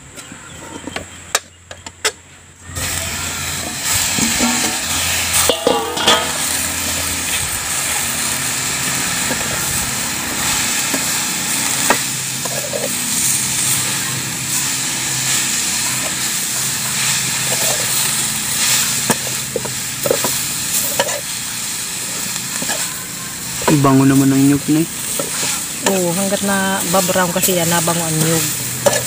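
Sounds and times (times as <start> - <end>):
pan sizzling: 2.7 - 29.0
ladle stirring in a wok: 2.8 - 23.7, 24.9 - 29.0
ladle clinking against metal: 5.4 - 6.6.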